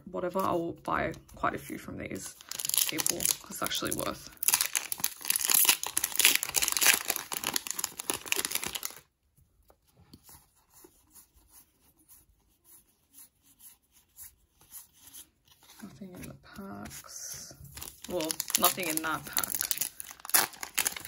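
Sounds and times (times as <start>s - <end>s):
foil wrapper tearing and crinkling: 2.4s - 9.1s, 17.8s - 21.0s.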